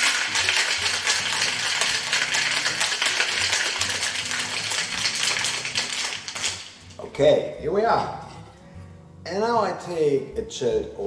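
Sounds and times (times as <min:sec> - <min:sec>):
ice rattling in cocktail shaker: 0:00.0 - 0:07.0.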